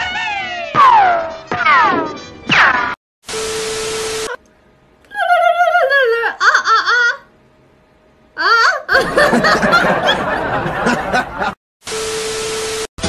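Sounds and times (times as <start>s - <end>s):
tv static hiss: 3.4s - 4.4s, 11.8s - 12.9s
woman's wavering vocal cry: 5.1s - 7.3s, 8.4s - 9.0s
woman laughing loudly: 5.2s - 7.3s, 8.4s - 11.6s.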